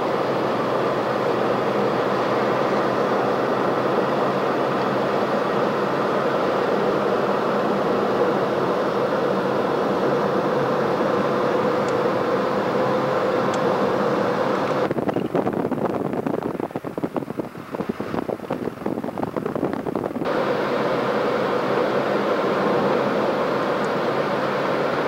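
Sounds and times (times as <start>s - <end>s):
steady hum: 0.0s - 25.0s
vehicle interior running noise: 0.0s - 25.0s
rough fluttering rumble: 14.8s - 20.3s.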